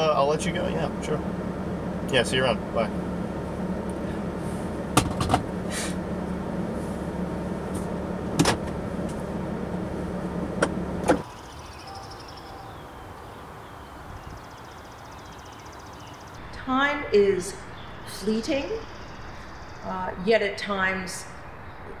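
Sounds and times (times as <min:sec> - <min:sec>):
low hum: 0:00.0 - 0:11.2, 0:16.2 - 0:22.0
faint high chirps: 0:11.3 - 0:16.6.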